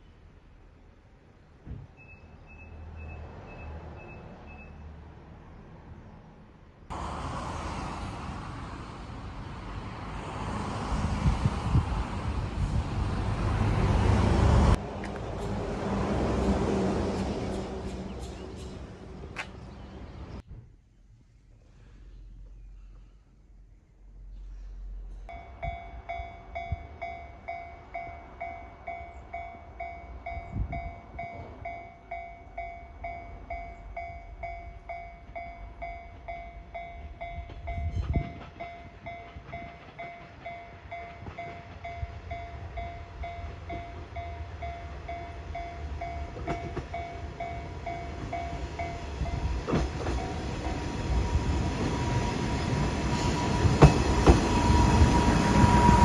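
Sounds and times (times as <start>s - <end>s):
diesel railcar running: 6.9s - 20.4s, 24.2s - 56.0s
level crossing warning bell ringing: 25.3s - 56.0s.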